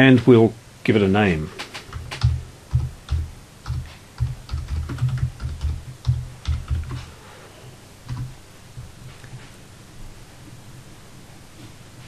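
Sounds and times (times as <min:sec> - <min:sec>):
typing on computer keyboard: 0:01.6 - 0:07.1, 0:08.1 - 0:08.3.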